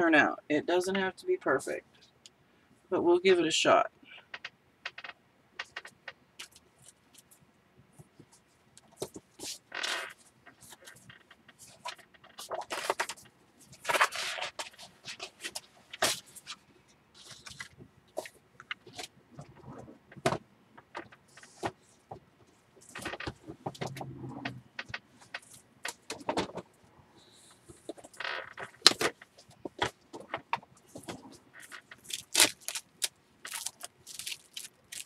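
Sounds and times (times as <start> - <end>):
paper rustling and scraping: 9.0 - 16.6, 27.8 - 35.0.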